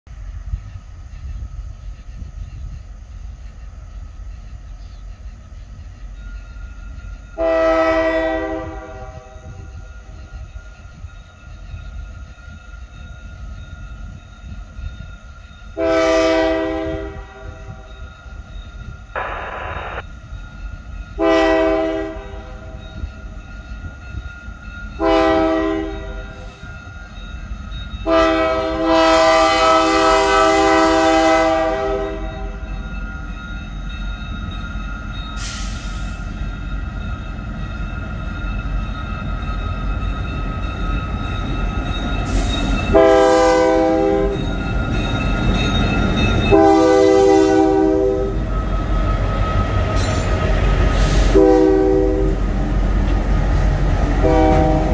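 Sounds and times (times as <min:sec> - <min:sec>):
low rumble of train: 0:00.0 - 0:54.9
locomotive air horn blasts: 0:07.4 - 0:09.3, 0:15.8 - 0:17.6, 0:21.2 - 0:22.6, 0:25.0 - 0:26.2, 0:28.0 - 0:32.6, 0:42.9 - 0:44.4, 0:46.5 - 0:48.4, 0:51.3 - 0:52.4, 0:54.2 - 0:54.9.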